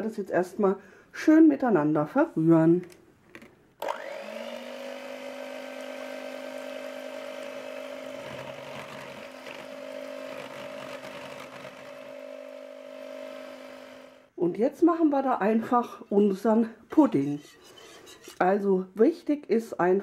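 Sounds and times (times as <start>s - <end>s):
electric hand mixer whine: 3.8s - 14.3s
beaters whisking liquid: 5.6s - 12.2s.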